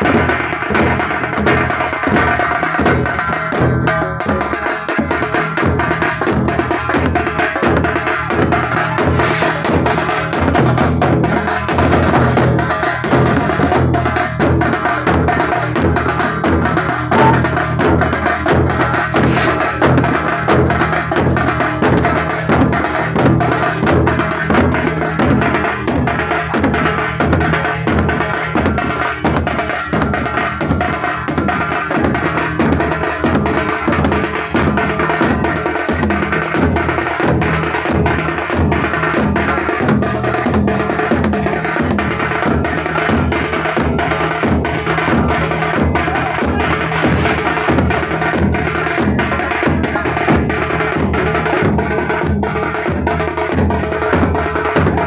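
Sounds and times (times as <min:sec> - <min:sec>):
large drum beaten with stick: 0:00.0 - 0:55.0
other percussion: 0:00.0 - 0:55.0
pitched music: 0:15.8 - 0:20.2.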